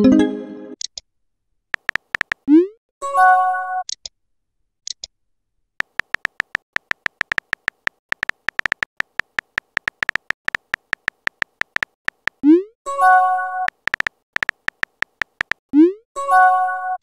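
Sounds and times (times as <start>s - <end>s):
faint high ticks: 1.8s - 2.4s, 5.8s - 12.4s, 13.7s - 15.6s
phone keyboard key-tap clicks: 1.8s - 2.4s, 5.8s - 12.4s, 13.7s - 15.6s.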